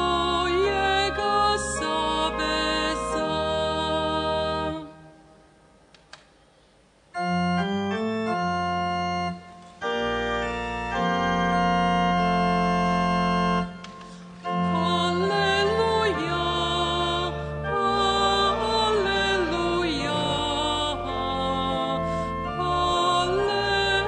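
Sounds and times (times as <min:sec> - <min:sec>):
organ playing sustained chords: 0:00.0 - 0:05.6, 0:07.1 - 0:24.0
solo voice singing with vibrato: 0:14.7 - 0:24.0.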